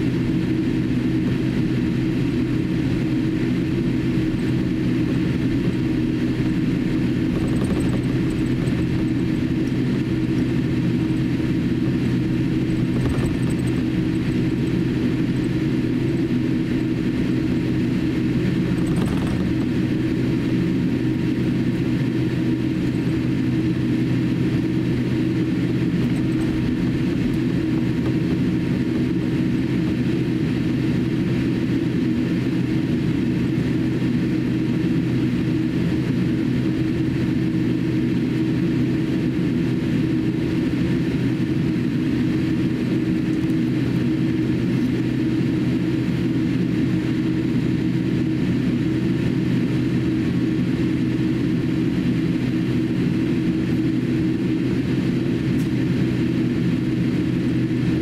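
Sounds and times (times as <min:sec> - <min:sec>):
airliner engine hum: 0:00.0 - 0:58.0.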